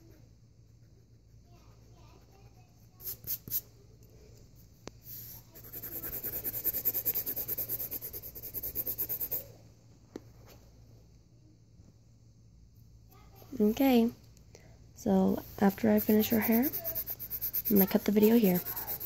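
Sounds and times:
colored pencil scratching on paper: 0.0s - 3.6s, 5.0s - 9.5s, 15.4s - 19.0s.

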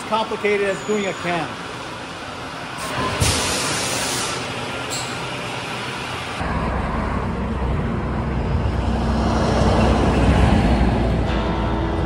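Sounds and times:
road traffic rumble: 0.0s - 12.0s
machinery hiss: 2.8s - 4.5s.

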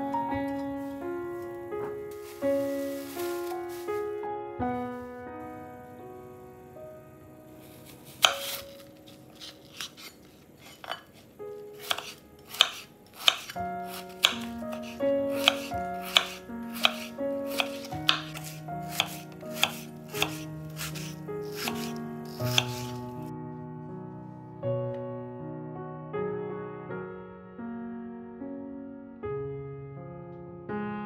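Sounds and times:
soft piano music: 0.0s - 31.0s
knife chopping on cutting board: 8.2s - 8.8s, 9.4s - 11.2s, 11.8s - 23.0s.

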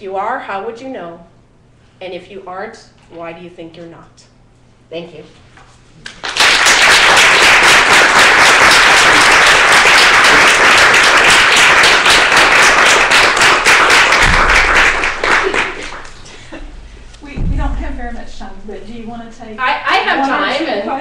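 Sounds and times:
audience applauding: 6.1s - 16.3s.

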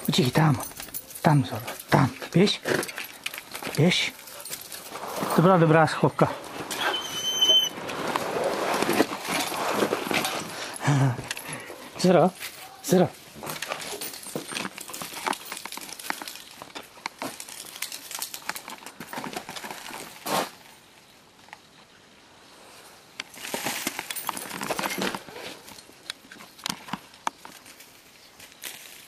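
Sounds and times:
footsteps crunching on gravel: 11.8s - 20.7s, 23.3s - 29.0s.

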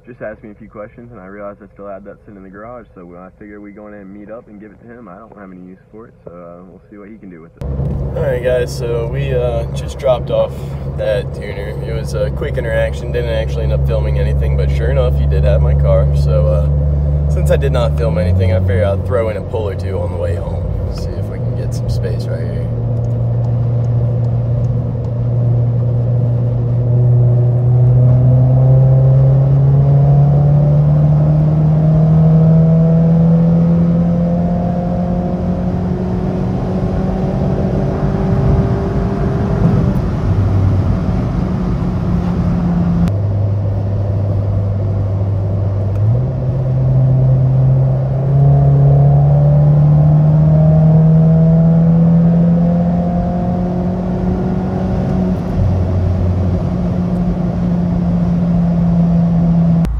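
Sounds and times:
car engine accelerating: 7.6s - 59.9s.

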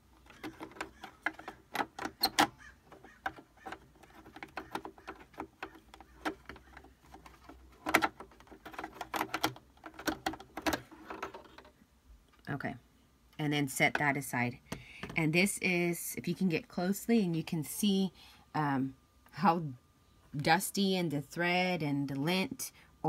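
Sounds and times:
sewing machine part clicking and rattling: 0.2s - 11.7s.

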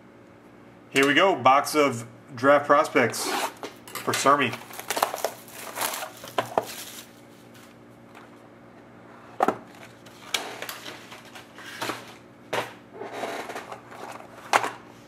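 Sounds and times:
cardboard scraping and rustling: 4.4s - 7.8s.

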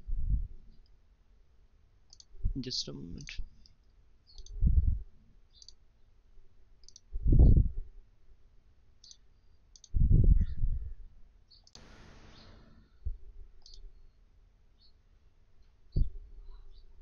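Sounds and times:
computer mouse clicking: 2.1s - 2.3s, 4.3s - 4.6s, 5.5s - 5.8s, 6.8s - 7.1s, 9.0s - 10.0s
short hiss: 11.8s - 13.0s.

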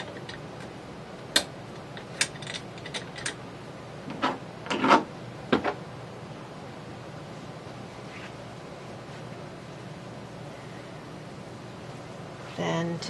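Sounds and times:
metal parts clicking and knocking: 2.2s - 3.4s.

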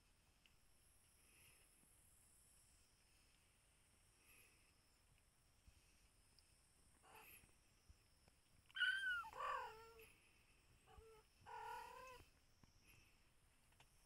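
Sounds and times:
cat meowing: 8.8s - 10.0s, 10.9s - 12.2s.

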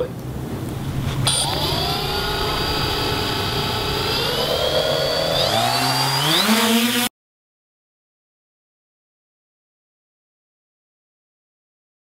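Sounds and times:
drone motors whining: 0.6s - 7.1s.

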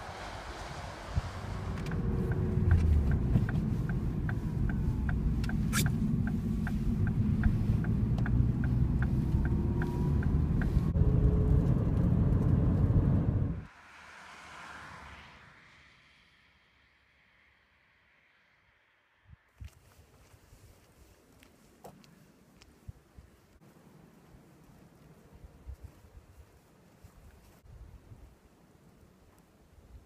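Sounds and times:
engine and road rumble: 0.0s - 22.8s
turn signal ticking: 1.6s - 13.1s.

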